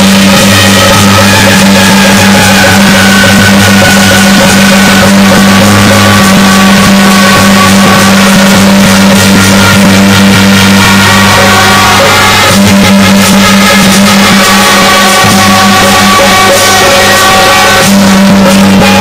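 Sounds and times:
traditional instrumental music: 0:00.0 - 0:19.0.

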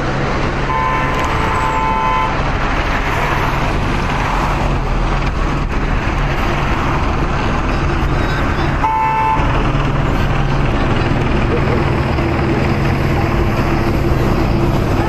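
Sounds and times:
street traffic noise: 0:00.0 - 0:15.0
car horn: 0:00.6 - 0:02.4, 0:08.6 - 0:09.6.

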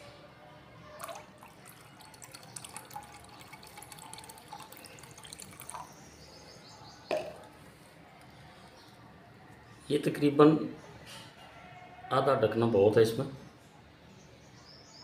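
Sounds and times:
water trickling into beaker: 0:01.0 - 0:06.1.

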